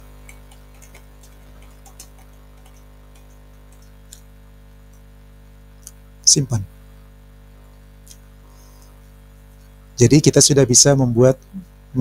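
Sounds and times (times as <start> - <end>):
low electrical hum: 0.0 - 12.0
computer keyboard keystrokes: 0.2 - 3.9.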